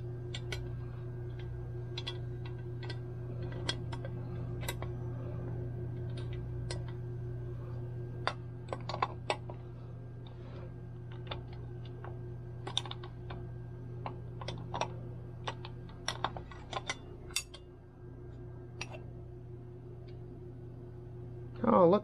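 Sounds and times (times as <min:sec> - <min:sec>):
steady low hum: 0:00.0 - 0:22.0
clicks of mixer parts being handled: 0:12.6 - 0:13.4.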